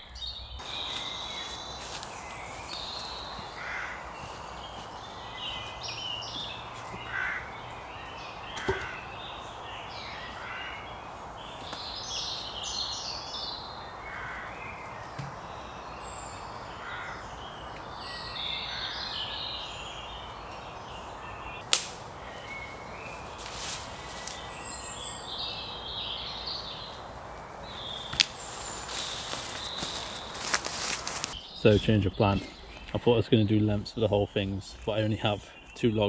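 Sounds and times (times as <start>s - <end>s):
songbirds chirping and singing: 0.0s - 36.0s
logs knocking: 8.6s - 9.0s.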